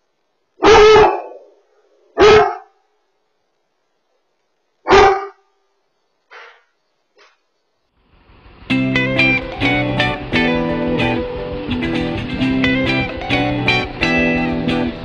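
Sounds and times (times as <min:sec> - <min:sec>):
dog barking: 0:00.6 - 0:01.6, 0:02.2 - 0:02.8, 0:04.8 - 0:05.5.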